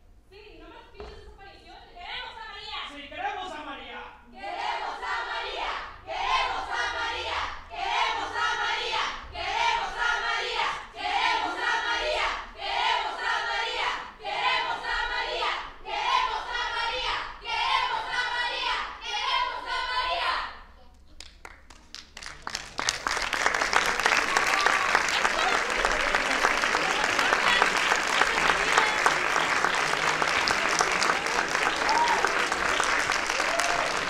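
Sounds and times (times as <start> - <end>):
young voices chanting in unison: 4.3 - 20.7.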